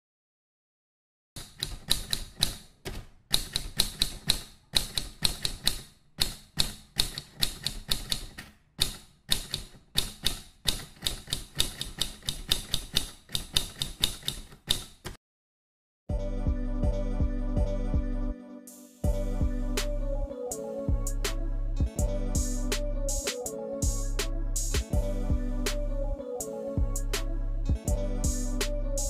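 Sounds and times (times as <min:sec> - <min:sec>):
typewriter key clicks: 0:01.4 - 0:15.2.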